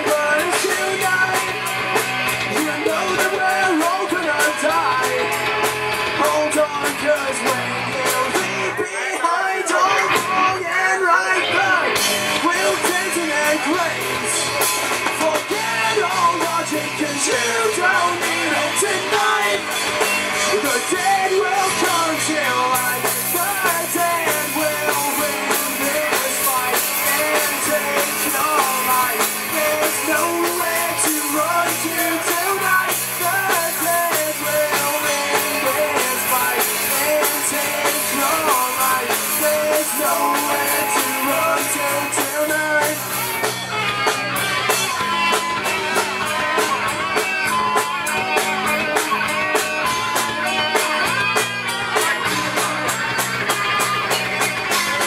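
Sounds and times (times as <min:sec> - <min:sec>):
rock band playing loudly: 0:00.0 - 0:55.0.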